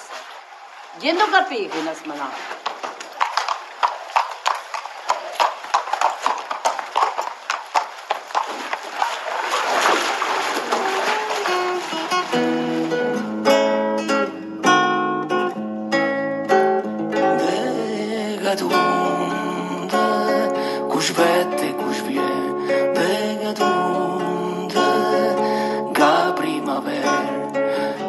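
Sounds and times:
horse hooves clip-clopping: 0:01.6 - 0:13.2
acoustic guitar plucked notes: 0:10.6 - 0:28.0.

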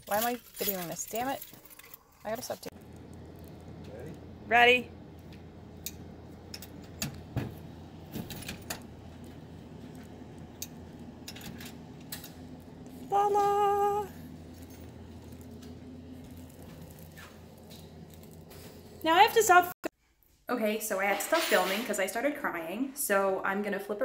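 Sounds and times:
keys jangling: 0:00.0 - 0:02.6
high held tone: 0:08.3 - 0:19.7.

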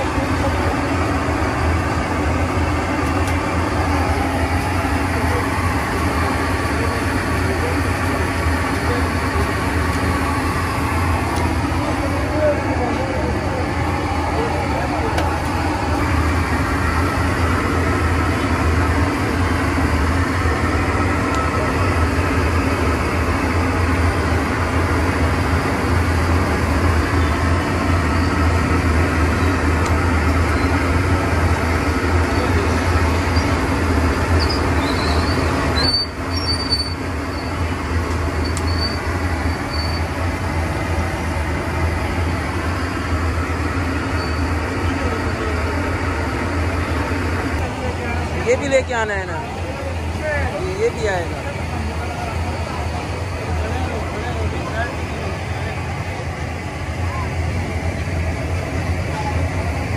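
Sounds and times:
low rumble of vehicle noise: 0:00.0 - 0:59.9.

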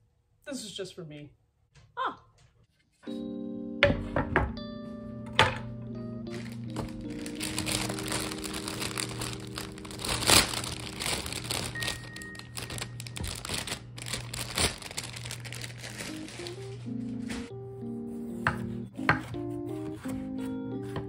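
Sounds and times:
plastic bag crinkling: 0:06.3 - 0:17.5.

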